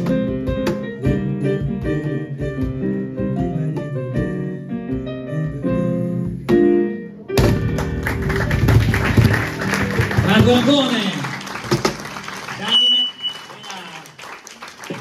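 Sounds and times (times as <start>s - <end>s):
cajon hits: 7.4s - 12.2s
audience applause: 7.8s - 15.0s.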